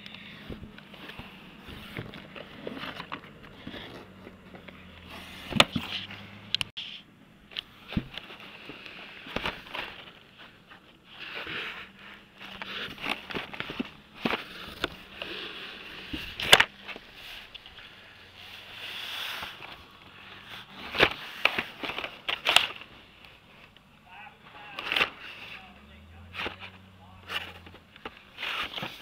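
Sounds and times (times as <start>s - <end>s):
card rustling: 0.1s - 7.0s, 7.6s - 29.0s
plastic packs clacking: 8.0s - 23.0s, 24.4s - 29.0s.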